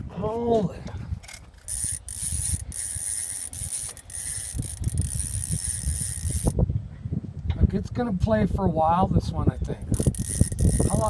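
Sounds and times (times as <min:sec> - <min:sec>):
wind rumble on microphone: 0:00.0 - 0:11.0
fishing reel drag buzzing: 0:01.3 - 0:06.6, 0:09.9 - 0:11.0.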